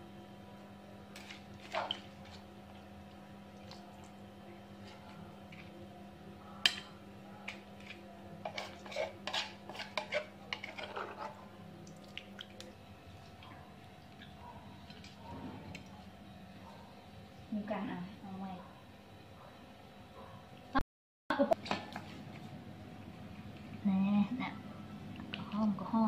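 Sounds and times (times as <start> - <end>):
metal spoon clinking and scraping: 7.5 - 11.3.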